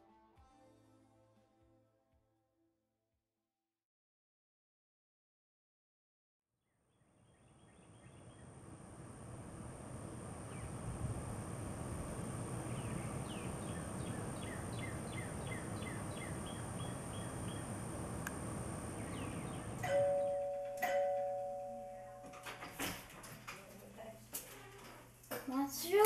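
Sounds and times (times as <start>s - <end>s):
bird chirps: 12.6s - 17.8s, 18.9s - 19.9s
doorbell chiming: 19.8s - 22.6s.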